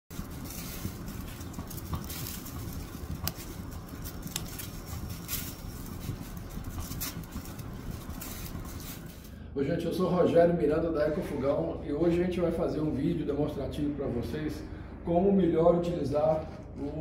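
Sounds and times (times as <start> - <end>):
fire crackling and popping: 0.1 - 9.3
low rumble of flame: 0.1 - 15.6.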